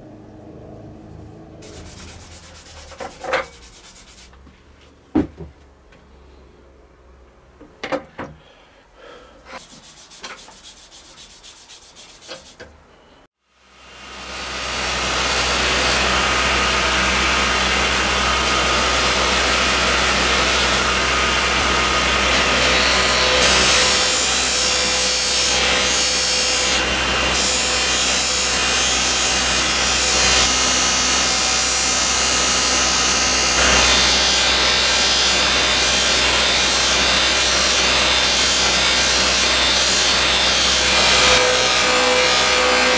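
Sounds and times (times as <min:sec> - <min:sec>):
lathe motor hum: 0:14.0 - 0:42.9.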